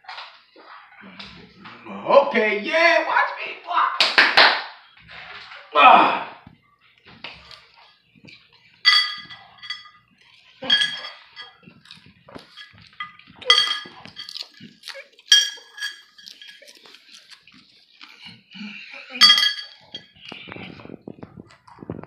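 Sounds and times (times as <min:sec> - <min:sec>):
plate clinking on floor: 0:08.8 - 0:17.0, 0:19.1 - 0:20.4
snuffling eating noises: 0:10.2 - 0:21.9.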